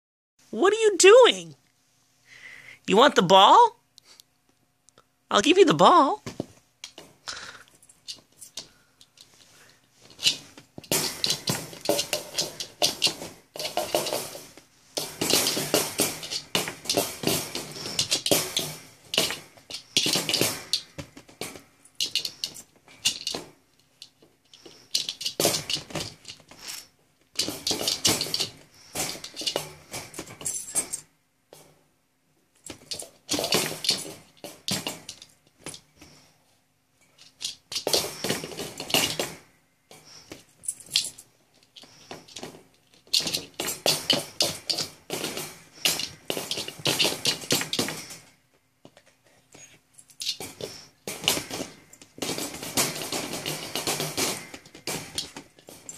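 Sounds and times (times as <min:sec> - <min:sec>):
wire dog crate rattling: 0:10.1 - 0:31.8, 0:32.6 - 0:35.9, 0:37.2 - 0:48.3, 0:50.0 - 0:55.9.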